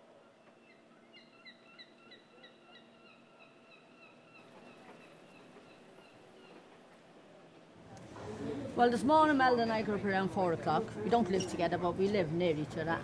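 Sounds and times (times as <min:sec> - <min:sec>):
low steady background hum: 0:00.0 - 0:13.0
faint bird chirping: 0:00.1 - 0:06.7.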